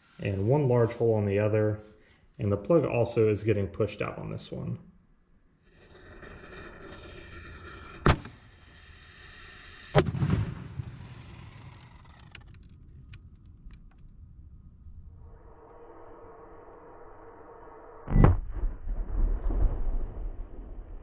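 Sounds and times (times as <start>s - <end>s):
firework fuse hiss: 8.8s - 12.0s
firework crackles: 8.9s - 13.5s
sharp firework bang: 9.9s - 11.6s, 18.1s - 20.4s
deep rumbling blast: 10.0s - 11.4s, 15.9s - 21.0s.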